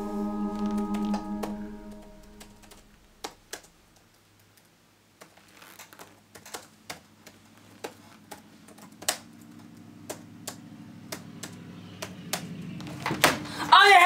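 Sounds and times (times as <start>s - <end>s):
laptop keyboard typing: 6.2s - 12.6s.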